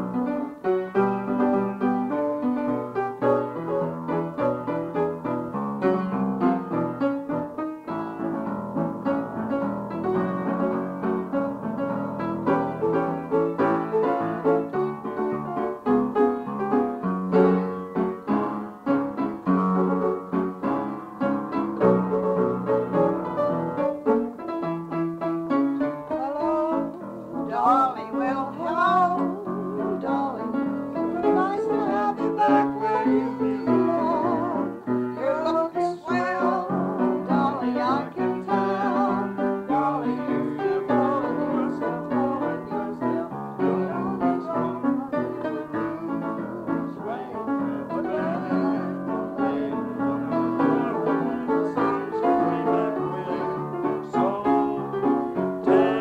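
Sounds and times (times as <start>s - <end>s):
piano melody over chords: 0.0s - 56.0s
person singing with vibrato: 25.8s - 56.0s.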